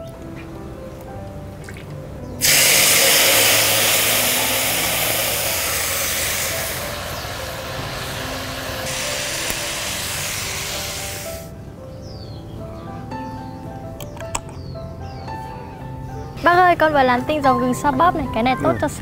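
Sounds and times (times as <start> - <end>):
ginger sizzling in oil: 2.4 - 11.5.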